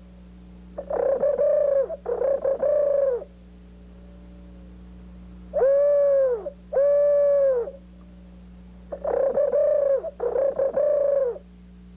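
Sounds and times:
bamboo flute hooting notes: 0:05.6 - 0:07.8.

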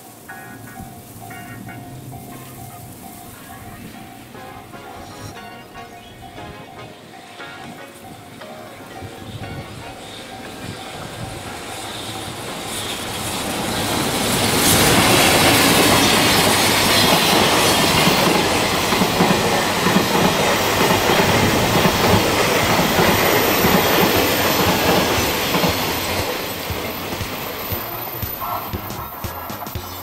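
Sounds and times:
train wheels rumbling over rails: 0:09.0 - 0:30.0.

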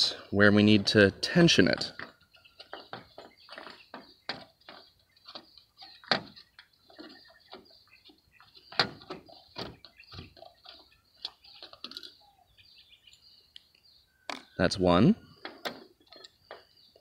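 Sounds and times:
small metal parts clicking and knocking: 0:11.2 - 0:12.2.

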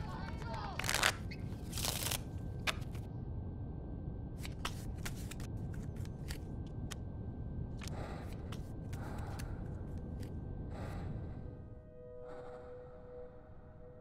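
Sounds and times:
low room hum: 0:00.0 - 0:14.0
playing cards swishing: 0:00.8 - 0:02.2
cards snapping and clicking: 0:00.8 - 0:03.0.

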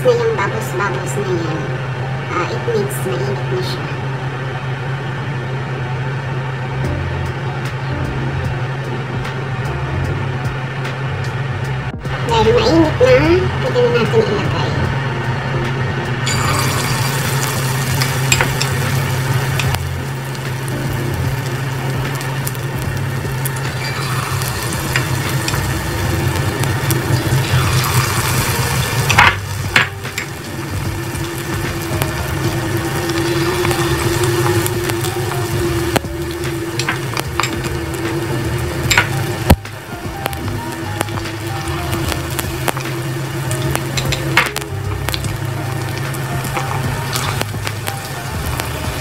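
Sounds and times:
steady low hum: 0:00.0 - 0:49.0
food sizzling in hot oil: 0:16.2 - 0:49.0.

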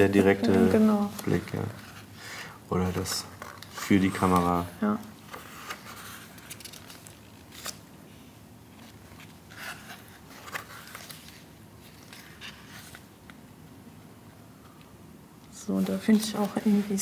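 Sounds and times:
paper rustling: 0:02.8 - 0:07.9, 0:08.7 - 0:13.4, 0:15.7 - 0:17.0
pages flicking: 0:05.4 - 0:07.9.

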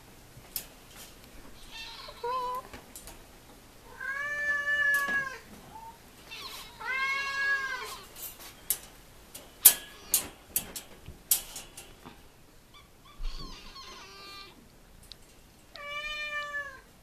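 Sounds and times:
kittens meowing: 0:01.6 - 0:02.7, 0:03.9 - 0:08.1, 0:12.7 - 0:14.6
sharp clicks and knocks: 0:08.3 - 0:12.3.

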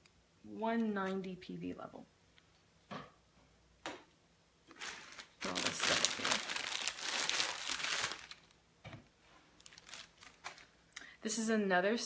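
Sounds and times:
packing material crinkling: 0:04.7 - 0:08.6, 0:09.4 - 0:10.8.

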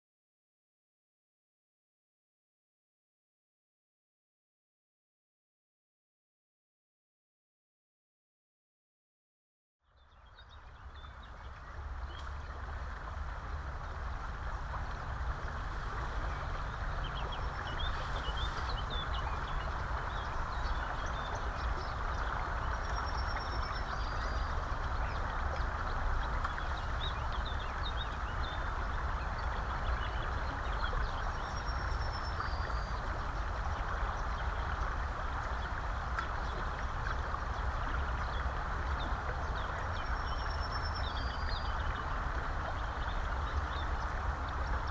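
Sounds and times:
river water flowing: 0:09.9 - 0:44.9
wind rumble on microphone: 0:09.9 - 0:44.9
small birds chirping: 0:16.0 - 0:34.7.

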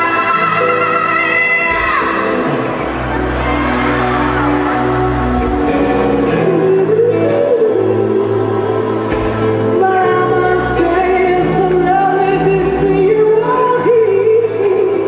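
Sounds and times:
woman singing: 0:00.0 - 0:02.5, 0:06.1 - 0:15.0.

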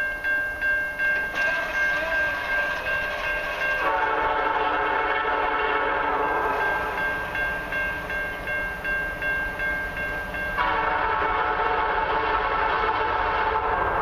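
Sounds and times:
level-crossing warning bell ringing: 0:00.0 - 0:14.0
locomotive horn blasts: 0:03.8 - 0:06.4, 0:10.6 - 0:14.0.

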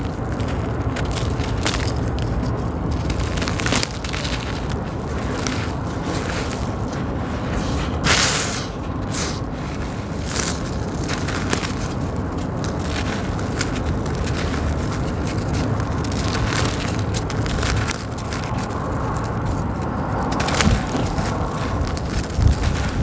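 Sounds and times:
cement chunks crunching in hands: 0:00.0 - 0:23.0
gritty grains trickling: 0:00.0 - 0:23.0.

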